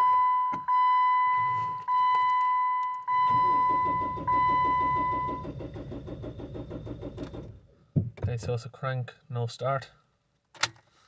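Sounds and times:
dashboard warning chime: 0:00.0 - 0:05.6
diesel engine cranking without starting: 0:03.1 - 0:07.8.

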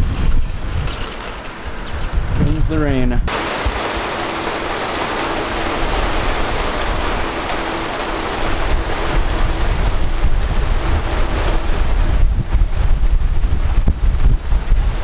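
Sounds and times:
wind rumble on microphone: 0:00.0 - 0:15.0
heavy rain pouring: 0:03.3 - 0:15.0.

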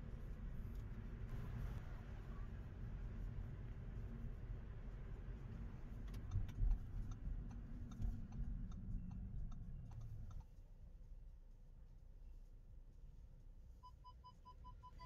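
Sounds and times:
low road rumble: 0:00.0 - 0:13.8
turn signal ticking: 0:06.0 - 0:10.4.

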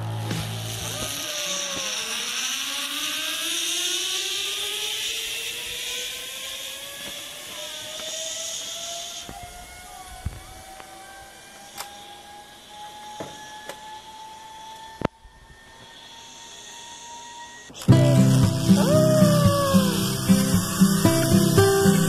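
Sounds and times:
zip-line trolley hissing rush: 0:00.0 - 0:22.0
background music: 0:17.9 - 0:22.0.

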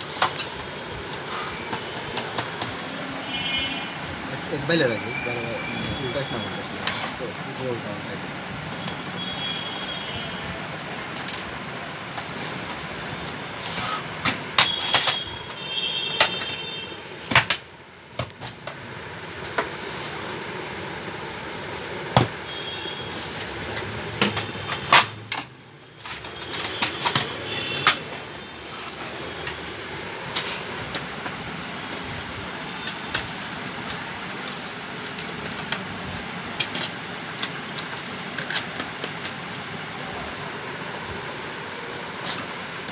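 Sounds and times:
steady background noise: 0:00.0 - 0:42.9
plastic printer parts clicking and rattling: 0:32.8 - 0:35.9, 0:36.5 - 0:39.6.

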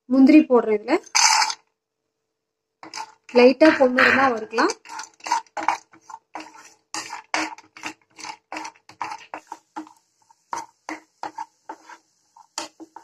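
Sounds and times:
wooden spatula scraping frying pan: 0:01.0 - 0:01.7, 0:02.8 - 0:13.0.

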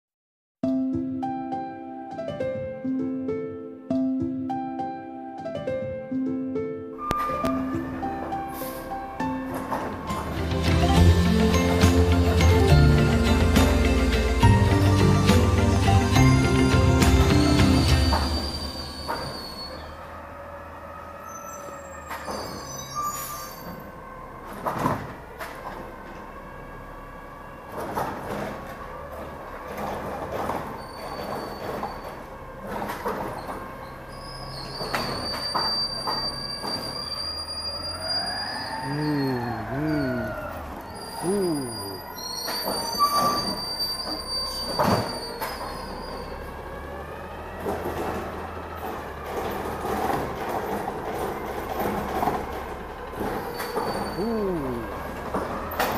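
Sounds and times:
garbage truck engine hum: 0:07.0 - 0:55.9
high squealing tones: 0:17.4 - 0:20.0, 0:34.1 - 0:46.4.

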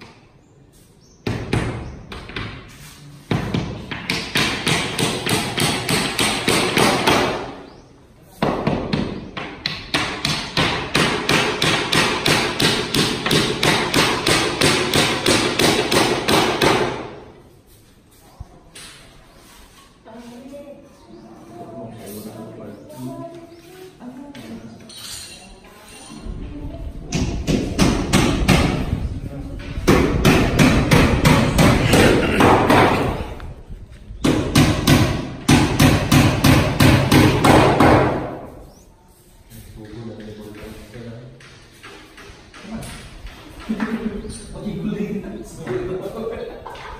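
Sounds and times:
steady hammering: 0:03.3 - 0:07.6, 0:08.4 - 0:17.3, 0:27.1 - 0:29.0, 0:29.8 - 0:33.2, 0:34.2 - 0:38.5.

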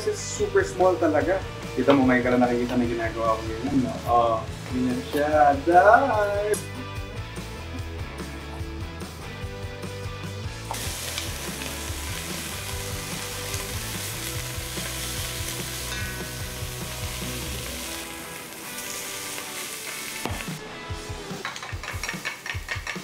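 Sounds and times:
meat sizzling in hot oil: 0:10.6 - 0:20.6
utensil knocks: 0:21.4 - 0:23.0.

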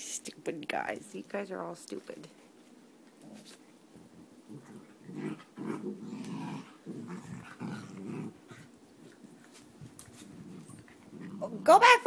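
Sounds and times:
dogs growling: 0:04.0 - 0:09.4, 0:10.1 - 0:11.7.

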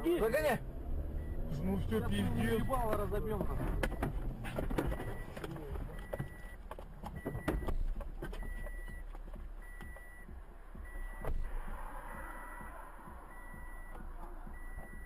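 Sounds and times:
vehicle rumble: 0:00.0 - 0:15.0
electronic warning beep: 0:02.3 - 0:03.0, 0:04.9 - 0:06.6, 0:08.4 - 0:11.5, 0:12.1 - 0:15.0.

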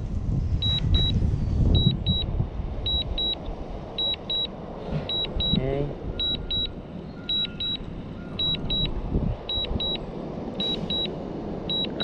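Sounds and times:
steady background noise: 0:00.0 - 0:12.0
high double beeps: 0:02.9 - 0:03.4, 0:04.0 - 0:04.5, 0:05.1 - 0:08.9, 0:09.5 - 0:10.0, 0:10.6 - 0:11.1, 0:11.7 - 0:12.0.

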